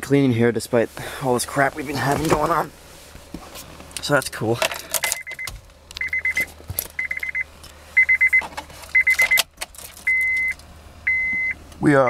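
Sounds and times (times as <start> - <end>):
dashboard warning chime beeping: 5.0 - 11.6.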